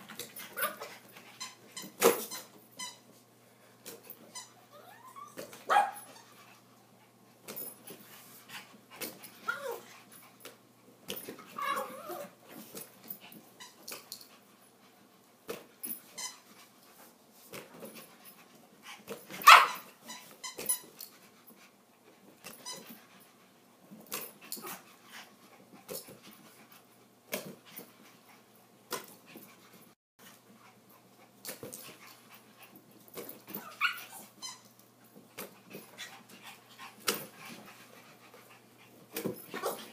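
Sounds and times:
small dogs barking and growling: 4.7s - 6.1s, 11.5s - 12.4s.

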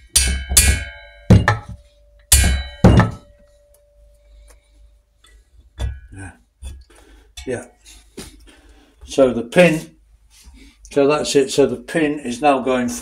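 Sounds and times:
hammer tapping metal tool: 0.0s - 4.1s, 5.8s - 6.8s.

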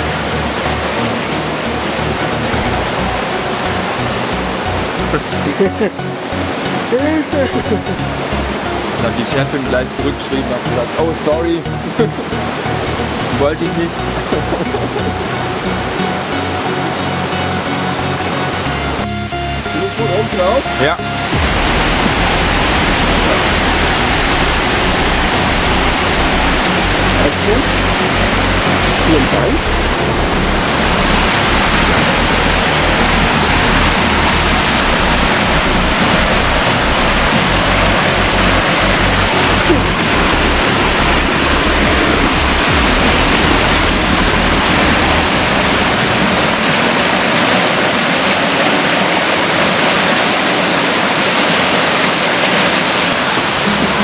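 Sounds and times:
waterfall roaring: 0.0s - 54.0s
deep rumble: 20.6s - 47.3s.

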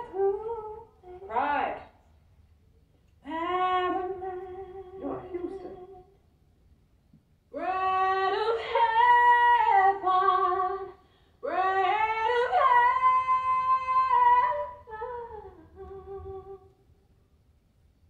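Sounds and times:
woman singing long notes: 3.3s - 6.2s.

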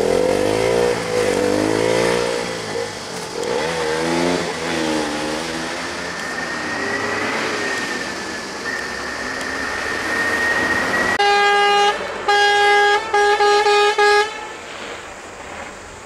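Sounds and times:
thin high whine: 4.9s - 16.0s
vehicle horn honking: 10.4s - 14.7s
steady hiss: 13.8s - 16.0s.

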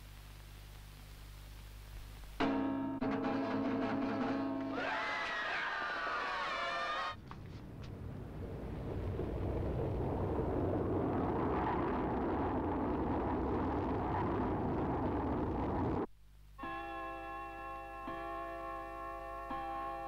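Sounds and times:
spacecraft engine rumbling hiss: 8.0s - 16.1s.

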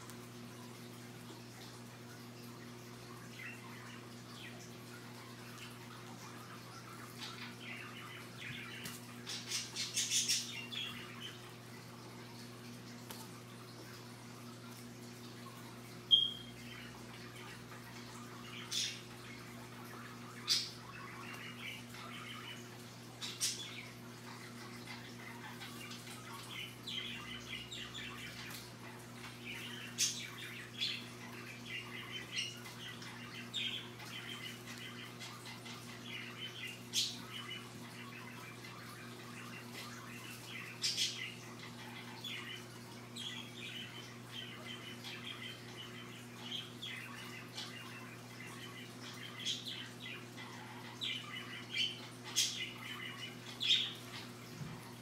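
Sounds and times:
parrot chirps: 16.1s - 16.6s.

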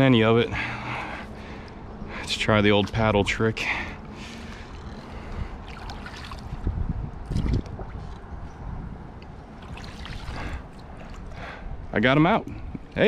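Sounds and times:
water sloshing: 2.2s - 8.4s, 9.1s - 11.6s
wind rumble on microphone: 4.3s - 13.0s.

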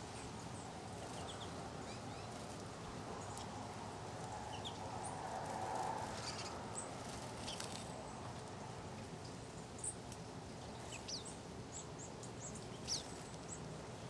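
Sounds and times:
faint steady hiss: 0.0s - 14.0s
finches chirping: 0.2s - 2.6s, 4.5s - 7.9s, 10.6s - 14.0s.

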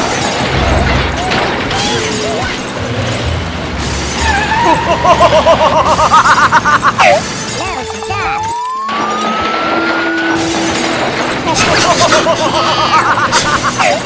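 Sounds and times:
warbling cartoon tone: 4.3s - 10.4s, 11.5s - 14.0s.

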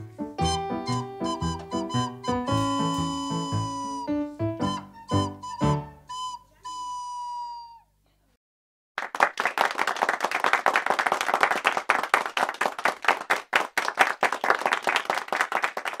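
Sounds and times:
hands clapping: 9.0s - 16.0s.

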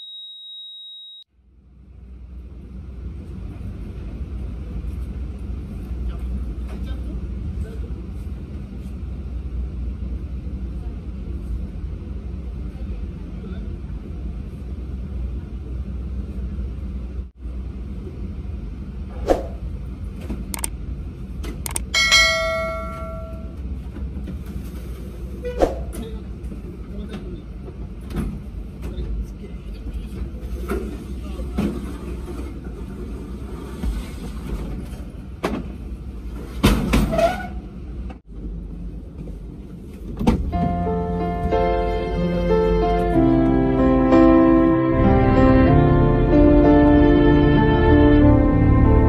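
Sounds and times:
heart monitor flatline beep: 0.0s - 1.2s
bell ding: 22.0s - 23.5s.

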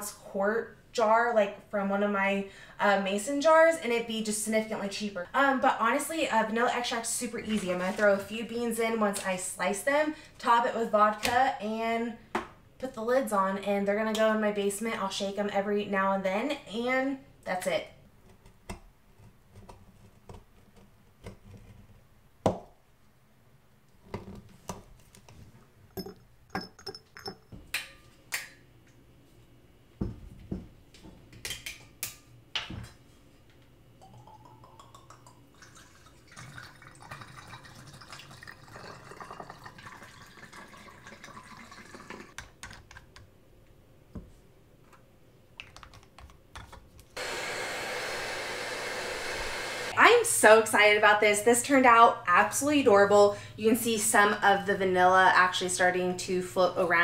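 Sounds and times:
glass bottles clicking: 26.0s - 27.5s
liquid pouring into bottles: 34.0s - 42.4s
hair dryer running: 47.2s - 50.2s.

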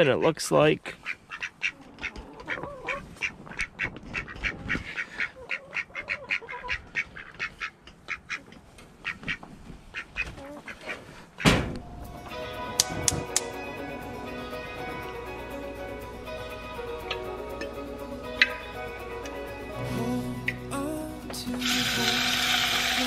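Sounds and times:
poultry calling: 0.9s - 12.8s
loud bump: 11.4s - 12.2s
music: 11.8s - 23.0s.

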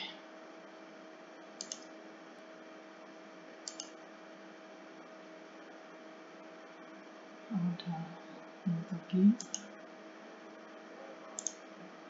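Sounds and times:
faint mains hum: 0.0s - 12.0s
computer mouse clicking: 1.6s - 1.9s, 3.6s - 4.0s, 9.4s - 9.7s, 11.4s - 11.6s.

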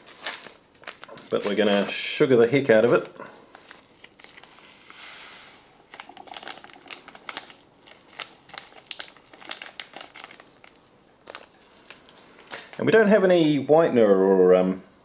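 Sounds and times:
sugar packets torn open: 0.0s - 2.0s, 3.5s - 4.9s, 5.9s - 12.8s
packaging crinkling: 0.0s - 2.2s, 2.8s - 13.4s
short hiss: 4.6s - 5.8s.

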